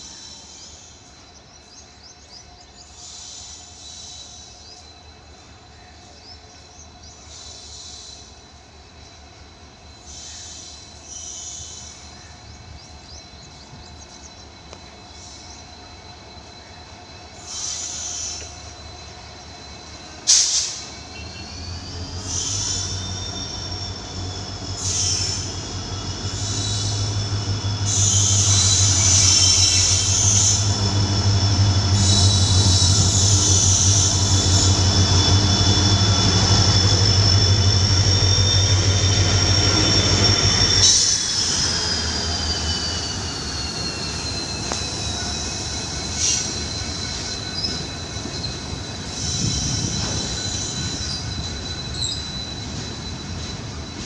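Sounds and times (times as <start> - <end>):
locomotive engine rumble: 16.9 - 54.0
high-pitched wheel squeal: 17.4 - 54.0.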